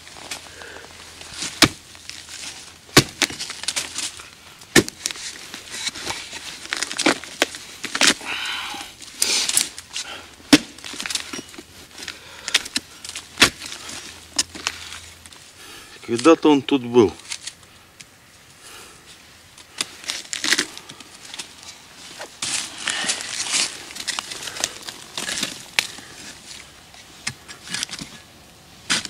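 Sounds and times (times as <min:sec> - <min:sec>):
wood crackling and splintering: 0:00.0 - 0:16.6, 0:19.5 - 0:28.3
hatchet hacking rotten wood: 0:01.6 - 0:01.8, 0:03.0 - 0:03.4, 0:04.7 - 0:05.0
loud sharp wood cracks: 0:02.9 - 0:05.2, 0:13.4 - 0:13.7.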